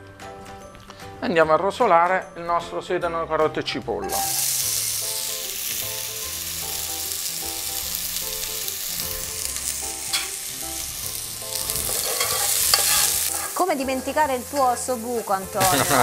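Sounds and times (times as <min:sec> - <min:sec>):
vegetables sizzling in oil: 0:04.1 - 0:16.0.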